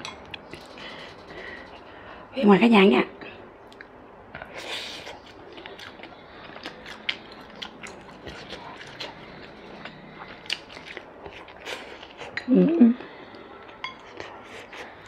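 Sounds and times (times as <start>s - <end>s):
person chewing food: 3.7s - 15.0s.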